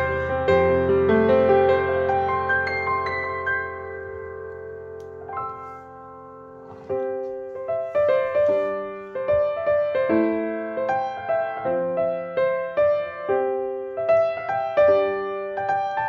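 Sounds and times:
soft solo piano melody: 0:00.0 - 0:16.0.

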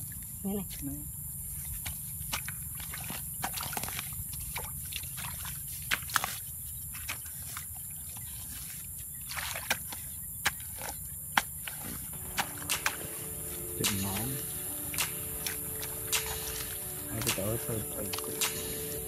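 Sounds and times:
small splashes and squelches: 0:01.4 - 0:19.0
hands sloshing through muddy water: 0:01.5 - 0:19.0
steady low rumble: 0:12.0 - 0:19.0
loud splashes: 0:12.1 - 0:19.0.

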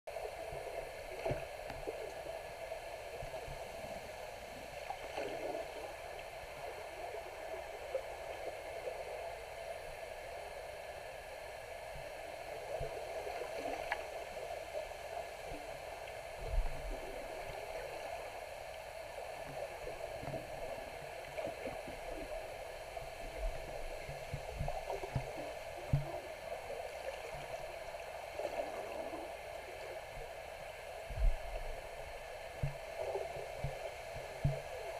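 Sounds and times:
muffled underwater rush: 0:12.0 - 0:34.9
low underwater thumps: 0:31.1 - 0:31.8, 0:32.6 - 0:32.8, 0:34.4 - 0:34.7.

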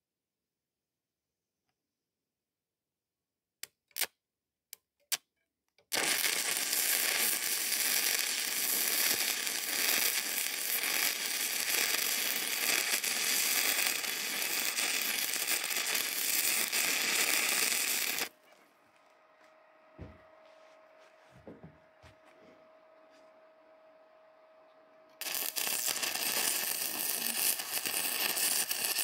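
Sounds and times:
welding arc pops: 0:05.9 - 0:18.3, 0:25.2 - 0:29.0
welding arc crackling: 0:05.9 - 0:18.4, 0:25.2 - 0:29.0.

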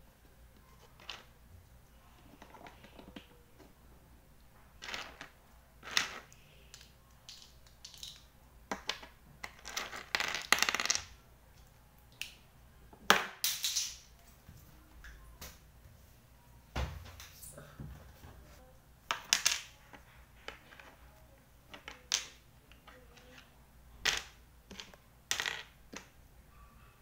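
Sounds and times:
plastic toy bricks clicking: 0:04.9 - 0:11.1.

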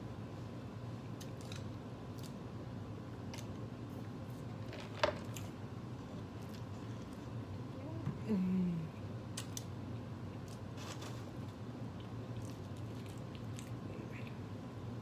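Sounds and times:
steady low hum: 0:00.0 - 0:15.0
chewing and mouth clicks: 0:12.0 - 0:14.4.

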